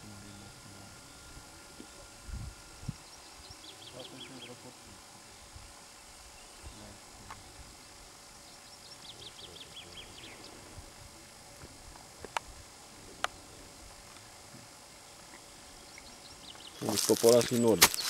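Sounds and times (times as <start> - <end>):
songbird singing: 0.0 - 2.0, 2.9 - 4.7, 5.3 - 7.0, 8.4 - 10.7, 15.1 - 18.0
faint outdoor hiss: 0.0 - 18.0.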